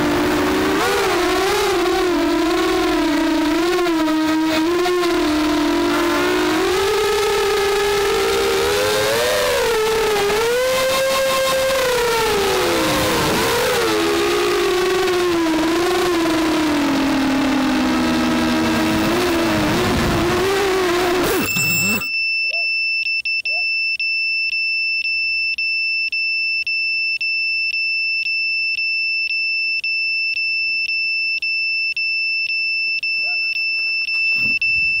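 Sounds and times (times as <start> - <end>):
quadcopter motors whirring: 0.0 - 22.1
buzzer beeping: 21.2 - 35.0.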